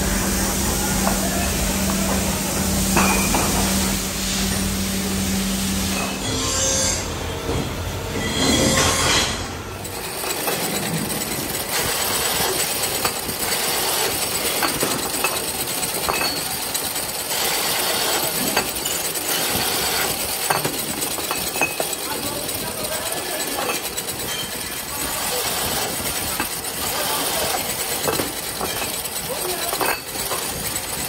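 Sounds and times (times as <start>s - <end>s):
drilling machine with metallic ticks: 9.8s - 31.0s.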